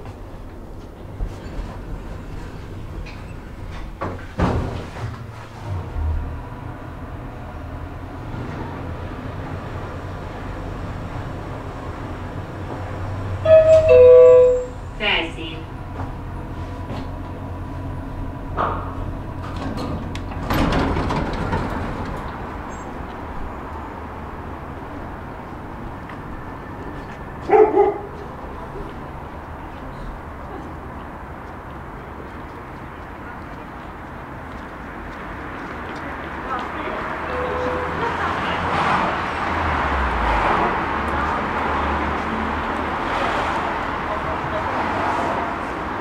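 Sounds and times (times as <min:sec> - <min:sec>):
traffic rumble: 0:00.0 - 0:46.0
lift doors sliding open: 0:00.1 - 0:14.8, 0:15.8 - 0:23.5.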